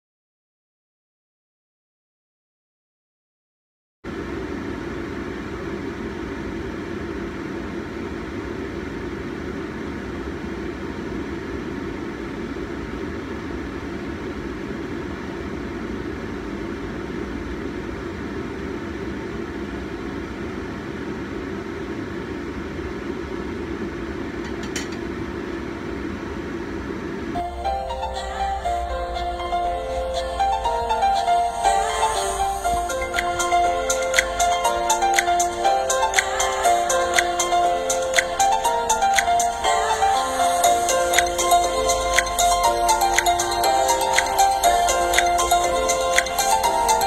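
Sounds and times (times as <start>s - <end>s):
gas stove hum and rush: 4.1s - 47.0s.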